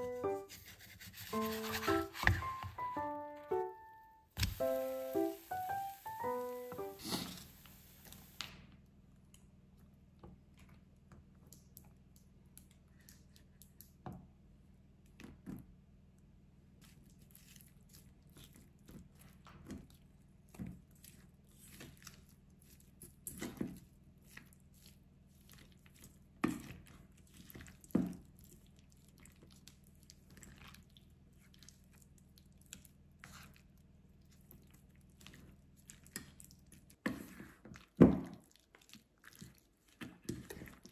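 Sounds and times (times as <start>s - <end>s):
soft wet squelching: 16.8s - 40.9s.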